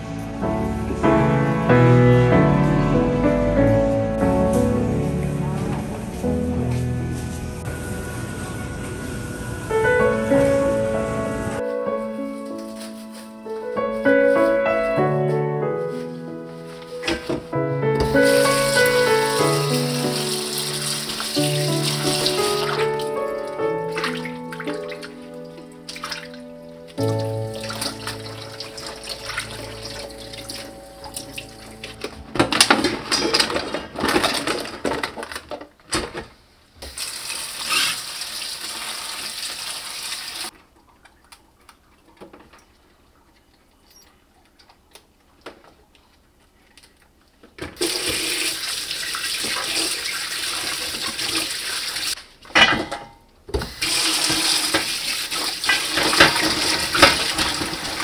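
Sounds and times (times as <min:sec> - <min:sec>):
water splashing: 0:18.0 - 0:32.1.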